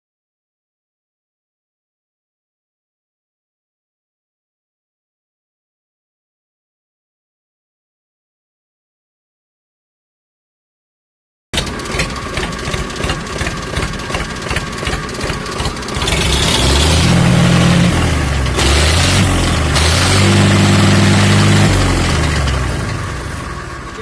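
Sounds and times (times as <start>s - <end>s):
diesel engine running and revving: 11.6s - 24.0s
tractor engine cranking: 11.6s - 24.0s.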